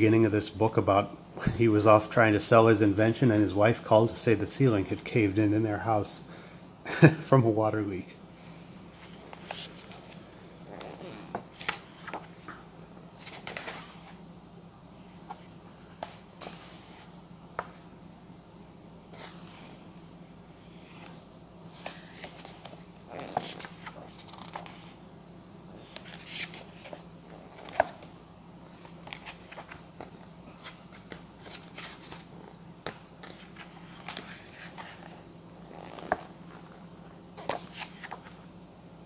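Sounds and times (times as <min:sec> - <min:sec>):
book pages rustling: 0:08.9 - 0:14.2, 0:15.1 - 0:17.9, 0:20.8 - 0:25.0, 0:25.7 - 0:38.4.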